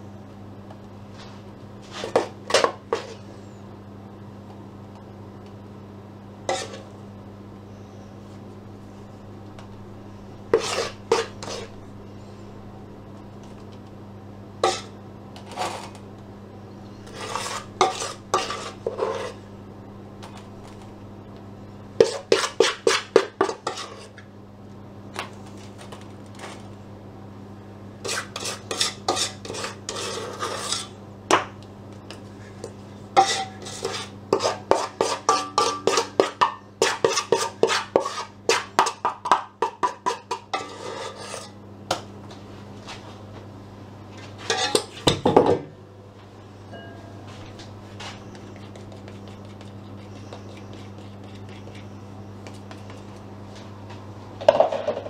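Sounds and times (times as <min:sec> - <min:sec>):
spoon scraping a mixing bowl: 0:06.4 - 0:06.9, 0:10.5 - 0:11.8, 0:14.6 - 0:16.0, 0:17.0 - 0:19.4, 0:22.0 - 0:24.2, 0:28.0 - 0:31.0, 0:33.2 - 0:41.6, 0:44.4 - 0:45.0, 0:48.0 - 0:53.2.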